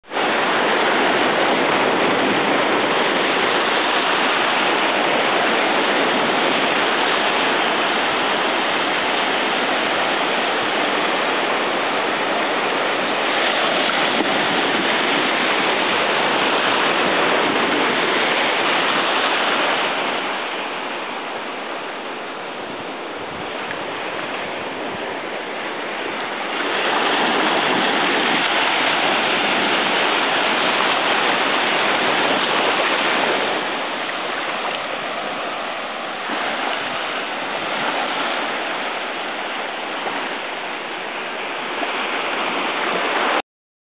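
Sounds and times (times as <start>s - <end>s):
waves washing over sandy beach: 0.0s - 43.4s.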